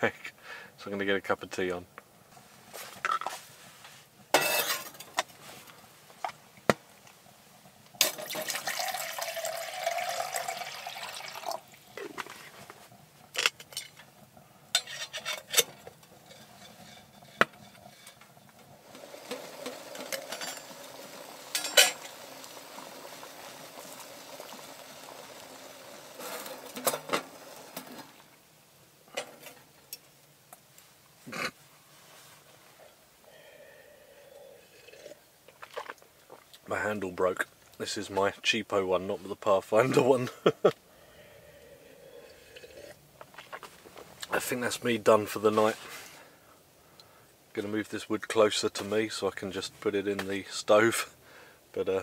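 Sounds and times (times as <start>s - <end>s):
water heating hiss: 0.0s - 52.0s
metal cookware clinking: 4.4s - 5.3s, 14.7s - 18.2s, 19.3s - 20.8s, 21.5s - 22.2s
water pouring: 8.0s - 14.9s, 15.7s - 28.3s.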